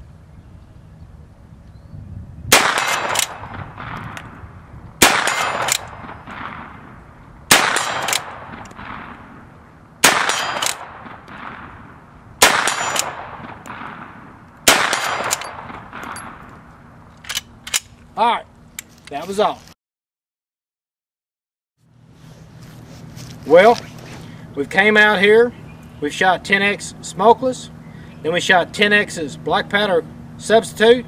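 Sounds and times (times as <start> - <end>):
rifle gunshots: 2.5 - 4.3, 5.0 - 9.4, 10.0 - 16.5.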